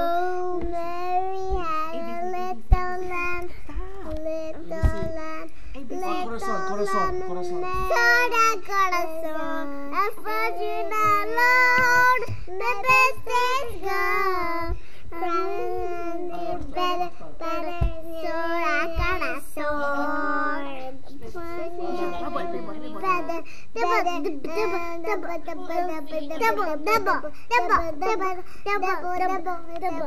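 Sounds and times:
girls singing: 6.0 - 30.0.

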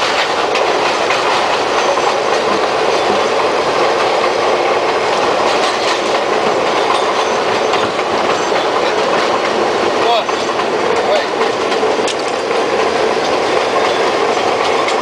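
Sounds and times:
clicking over rail joints: 0.0 - 15.0
steel wheels rumbling on rail: 0.0 - 15.0.

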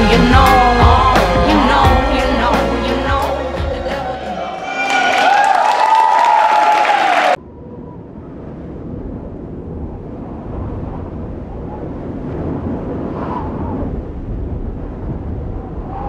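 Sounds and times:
low rumbling noise: 7.3 - 16.0.

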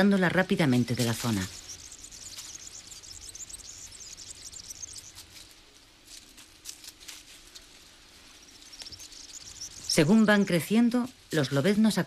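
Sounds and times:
dense high-pitched chirping: 0.3 - 5.7, 7.5 - 11.7
soft ticks or rustles: 0.6 - 11.8.

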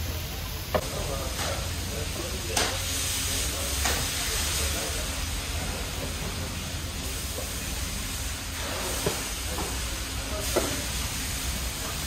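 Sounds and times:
food sizzling over charcoal: 0.0 - 12.0.

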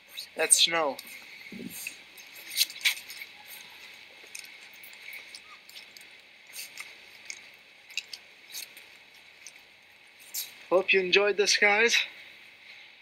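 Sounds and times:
faint steady hiss: 0.0 - 13.0
footsteps crunching on snow: 1.0 - 10.7.

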